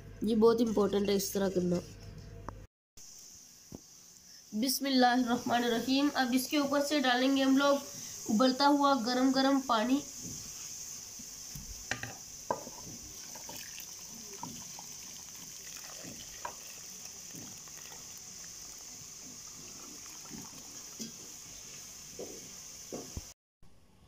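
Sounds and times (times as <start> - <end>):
water pouring into a pot: 12.5 - 22.1.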